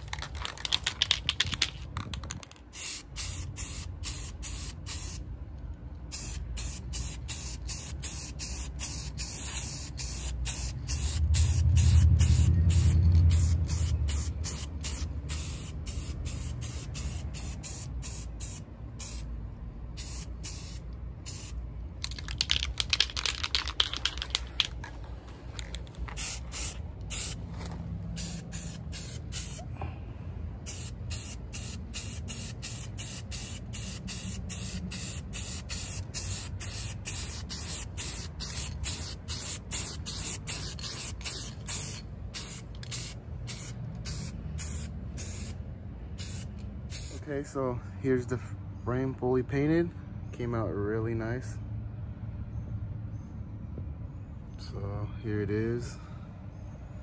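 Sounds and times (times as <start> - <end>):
spray-paint can hissing: 2.7 - 5.2, 6.1 - 19.3, 20.0 - 24.7, 26.2 - 27.4, 28.2 - 29.6, 30.7 - 45.6, 46.2 - 47.2.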